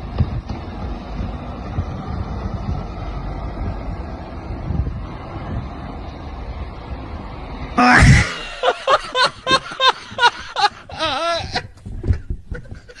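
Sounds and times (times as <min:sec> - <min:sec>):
wind buffeting microphone: 0:00.0 - 0:13.0
man laughing loudly: 0:07.8 - 0:13.0.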